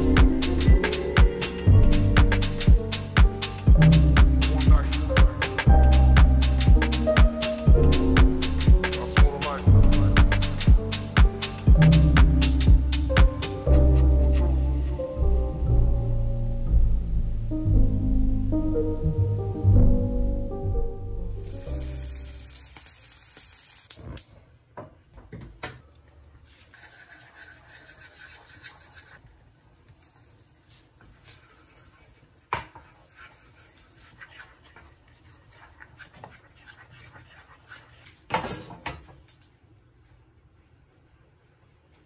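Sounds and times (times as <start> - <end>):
background music: 0.0 - 22.5
saucepan sizzling: 21.2 - 24.2, 26.4 - 38.2.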